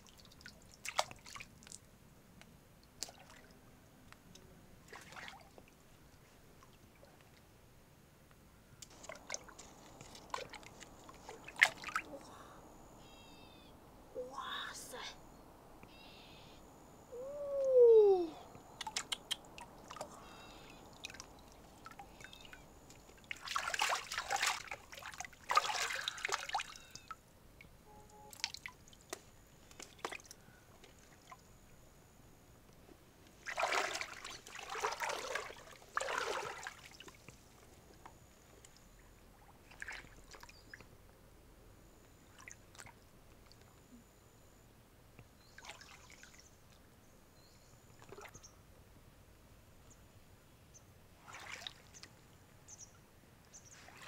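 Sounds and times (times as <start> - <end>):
water splashing and dripping: 0.0 - 1.8, 2.9 - 3.5, 4.9 - 5.8, 8.8 - 12.2, 18.8 - 27.1, 33.4 - 37.4, 51.2 - 52.1.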